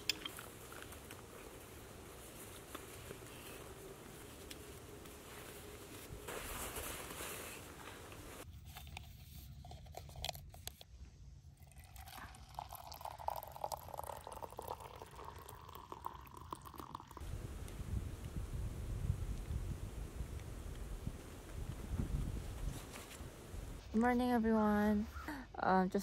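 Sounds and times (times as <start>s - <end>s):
hot water pouring into mug: 11.6s - 17.2s.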